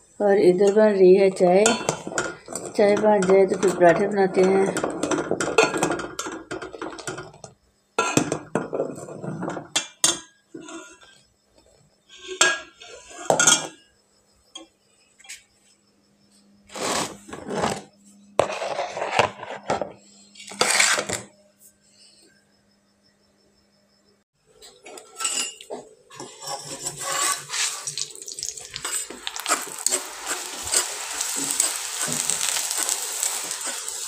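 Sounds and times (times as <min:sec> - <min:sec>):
ladle scraping metal pot: 0:25.0 - 0:34.0.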